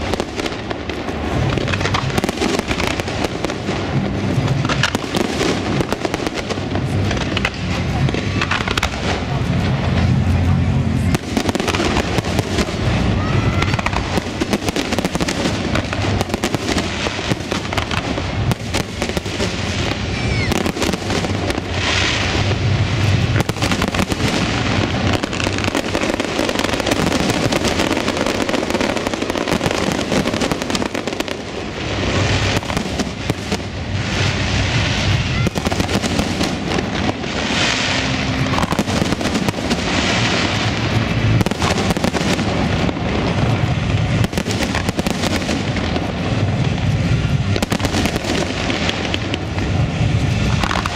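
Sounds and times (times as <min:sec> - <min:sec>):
fireworks hissing crackle: 0:00.0 - 0:50.9.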